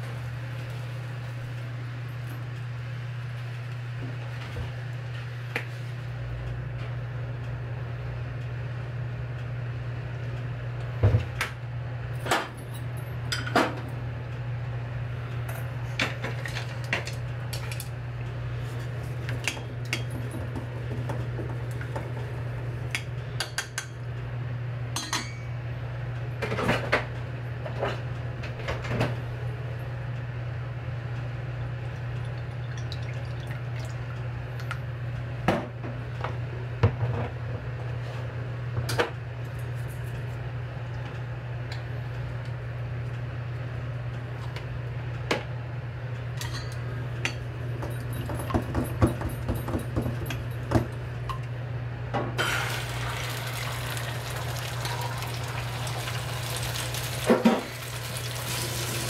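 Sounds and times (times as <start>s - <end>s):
utensils clinking against dishes: 25.0s - 25.5s, 46.4s - 50.8s.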